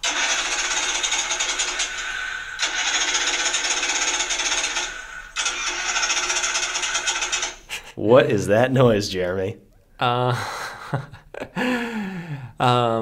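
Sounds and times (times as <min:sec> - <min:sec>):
starter solenoid clicking: 0:00.0 - 0:07.6.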